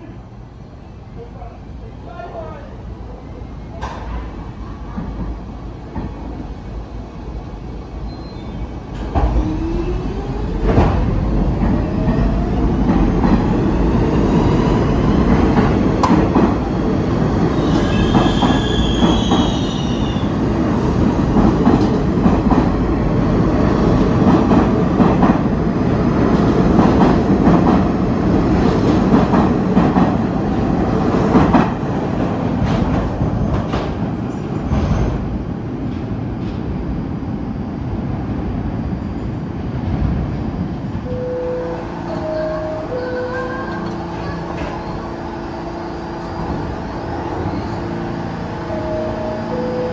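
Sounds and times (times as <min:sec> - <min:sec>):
train rumble: 0:00.0 - 0:49.9
high wheel squeal: 0:17.6 - 0:20.2.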